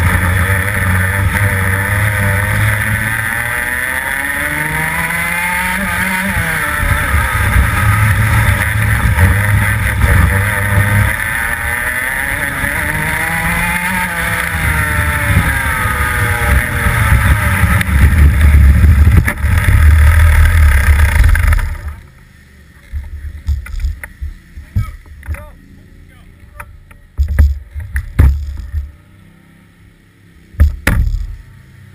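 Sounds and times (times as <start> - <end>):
kart engine revving: 0.0 - 22.3.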